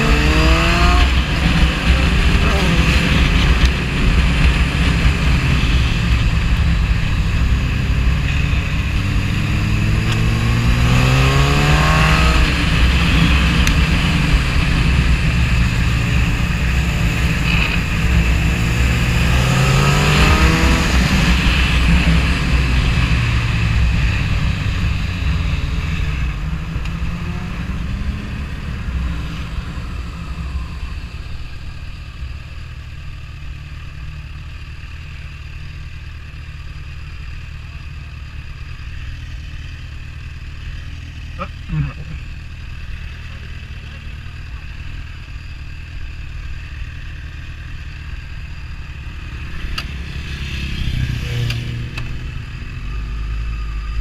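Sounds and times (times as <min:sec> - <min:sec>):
heavy wind rush: 0:00.0 - 0:31.5
motorcycle engine accelerating: 0:00.0 - 0:54.0.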